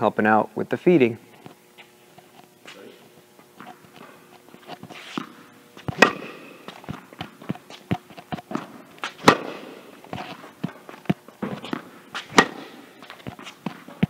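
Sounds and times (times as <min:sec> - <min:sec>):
shoes scuffing on court: 0:01.3 - 0:14.0
tennis ball bouncing: 0:03.6 - 0:14.0
tennis racket hitting ball: 0:03.6 - 0:14.0.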